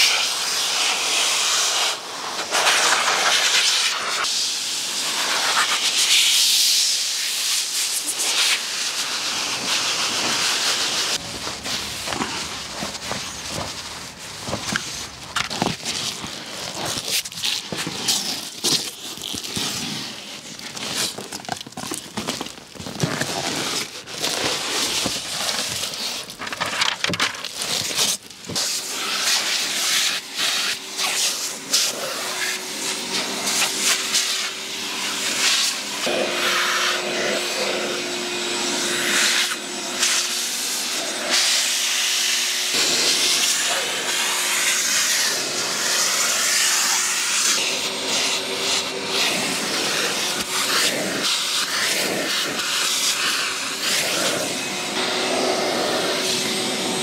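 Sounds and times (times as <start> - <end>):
air tool running: 28.6 - 57.0.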